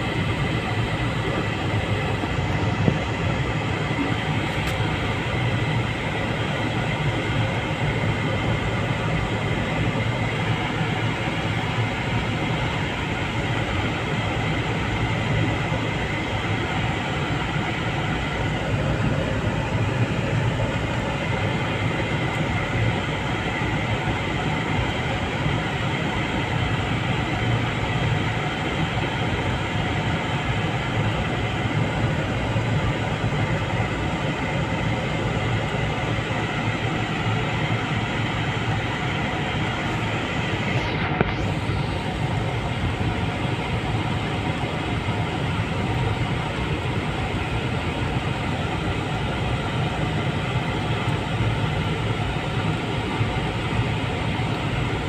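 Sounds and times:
car engine and tyre rumble: 0.0s - 55.0s.

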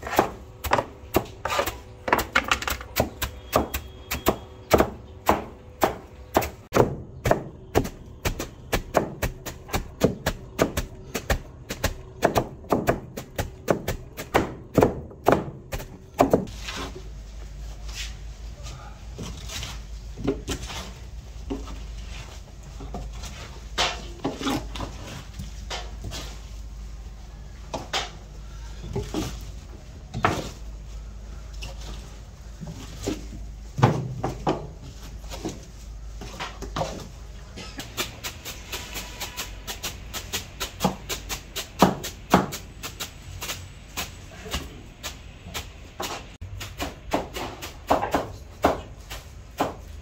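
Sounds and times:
knife chopping onions: 0.0s - 16.5s
onions knocking and scraping: 0.0s - 17.2s.

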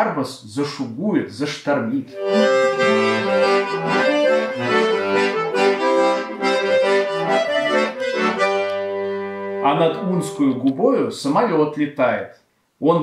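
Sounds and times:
accordion playing: 2.1s - 10.7s.

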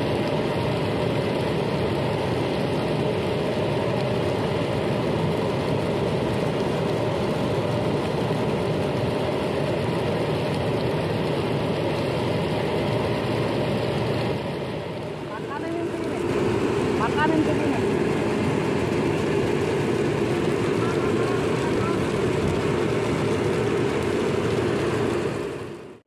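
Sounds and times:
steady engine noise: 0.0s - 26.0s.

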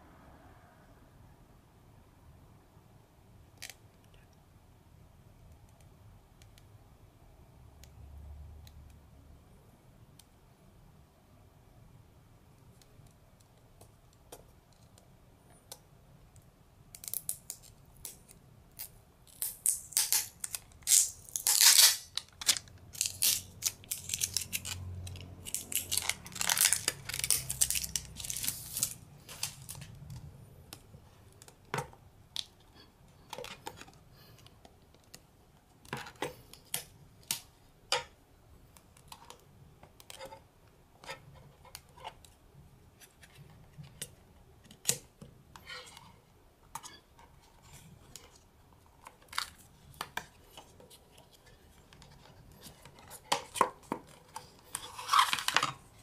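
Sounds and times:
packaging being handled and opened: 17.0s - 30.2s, 49.0s - 56.0s.

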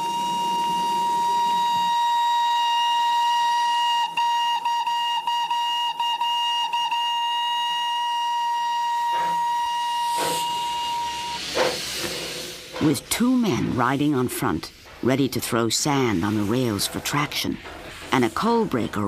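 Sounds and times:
steam locomotive whistle: 0.0s - 11.8s.

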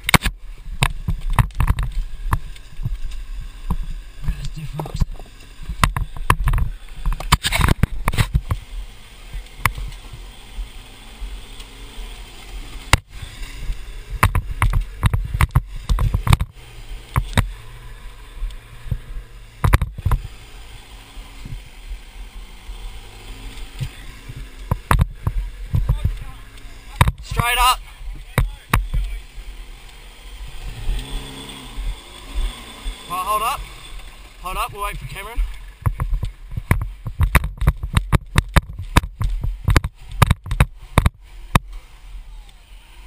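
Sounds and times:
camera handling knocks and bumps: 0.0s - 3.1s, 5.7s - 8.6s, 14.2s - 16.5s, 19.6s - 20.2s, 24.6s - 26.2s, 35.8s - 41.7s
vehicle engine running: 0.0s - 43.0s.

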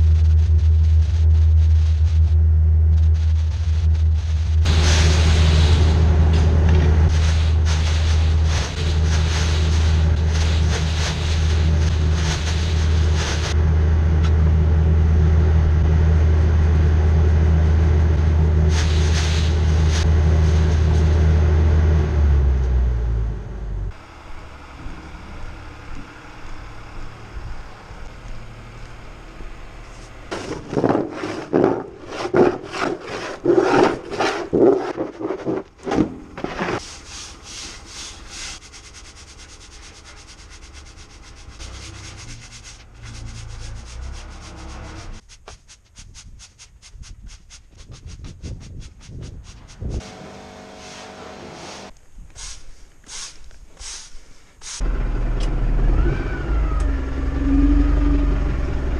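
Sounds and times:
metal shovel scraping concrete: 4.6s - 13.6s, 30.3s - 38.3s.

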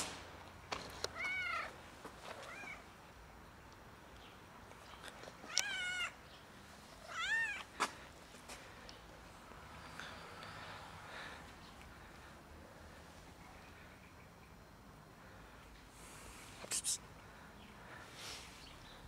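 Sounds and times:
cat meowing: 1.2s - 1.7s, 2.4s - 2.8s, 5.5s - 6.2s, 7.0s - 7.7s.

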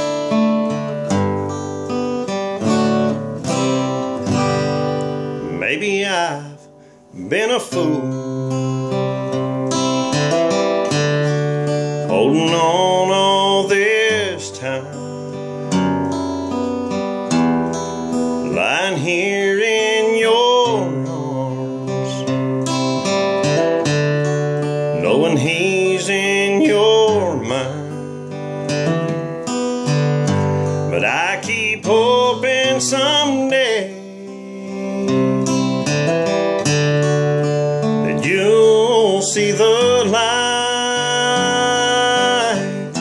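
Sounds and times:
acoustic guitar: 0.0s - 43.0s
man singing: 5.4s - 9.1s, 11.6s - 15.6s, 18.4s - 23.9s, 24.6s - 28.8s, 30.3s - 37.0s, 37.8s - 43.0s.

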